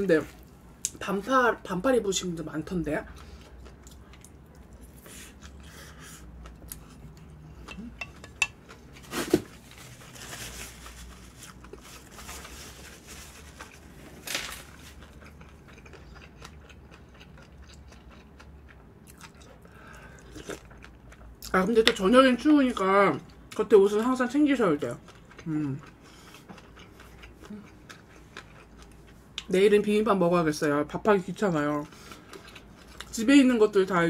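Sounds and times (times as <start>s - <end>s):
person chewing: 3.1s - 9.1s, 14.8s - 21.6s, 24.9s - 29.5s, 31.7s - 33.1s
cutlery clinking on a bowl: 7.7s - 8.6s.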